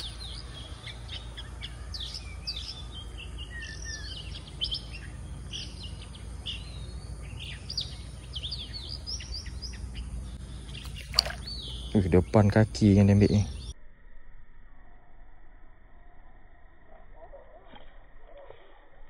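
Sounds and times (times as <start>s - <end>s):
birds chirping and twittering: 0.0s - 13.8s.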